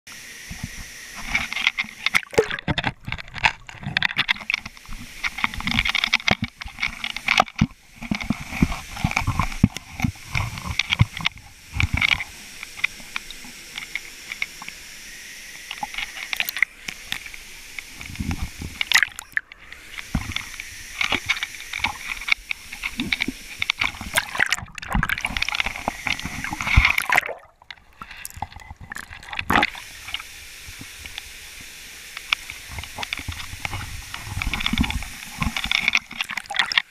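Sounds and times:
water sloshing: 0:02.0 - 0:08.2, 0:22.8 - 0:29.8.

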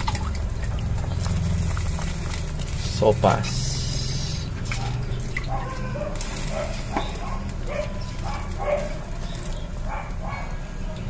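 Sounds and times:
high-pitched yelps: 0:05.5 - 0:06.8.

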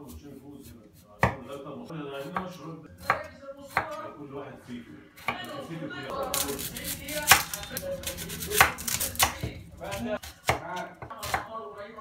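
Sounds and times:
knife chopping on wooden board: 0:01.2 - 0:01.5, 0:07.3 - 0:11.5.

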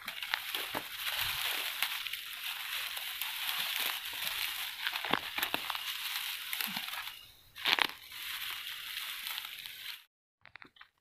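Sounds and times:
dry grass rustling and crunching: 0:00.0 - 0:10.7
sharp grass cracks: 0:00.0 - 0:10.8.

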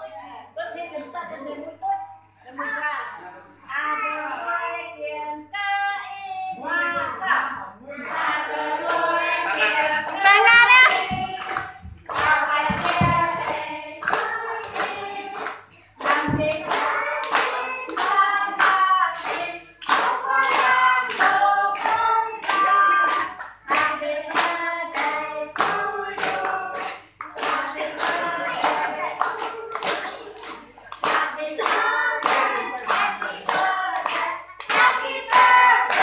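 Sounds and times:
group singing: 0:04.3 - 0:36.0
hands clapping: 0:08.9 - 0:36.0.

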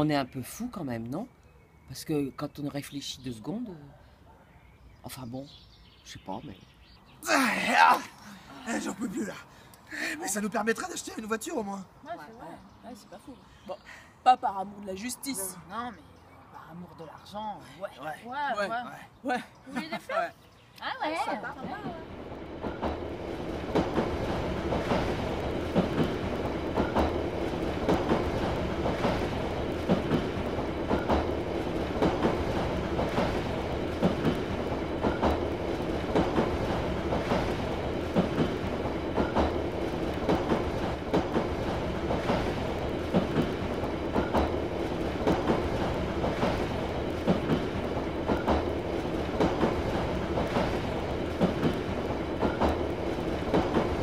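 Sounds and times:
train rumble: 0:20.8 - 0:54.0
wheels clacking over rail joints: 0:21.4 - 0:54.0.

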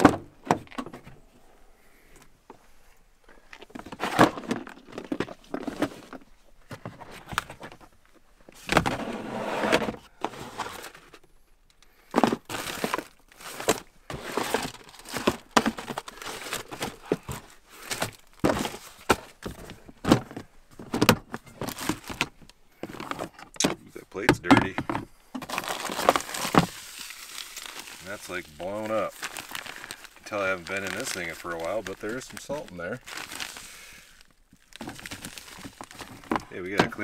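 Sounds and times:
plastic tubs knocking and clattering: 0:00.0 - 0:01.2, 0:03.6 - 0:07.9, 0:12.1 - 0:26.9, 0:27.7 - 0:33.6, 0:34.7 - 0:37.0
packaging rustling: 0:12.2 - 0:23.3, 0:25.4 - 0:37.0.

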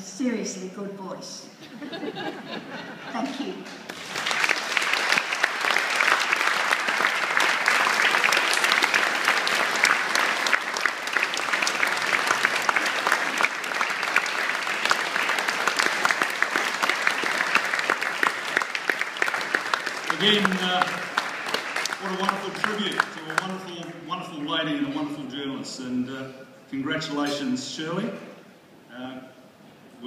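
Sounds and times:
audience applauding: 0:03.9 - 0:24.6.

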